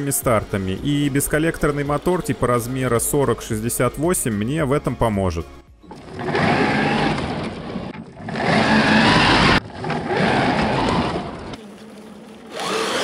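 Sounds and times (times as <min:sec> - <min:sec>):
tyres churning snow: 0:05.8 - 0:13.0
electric motor whine: 0:05.9 - 0:11.6, 0:12.5 - 0:13.0.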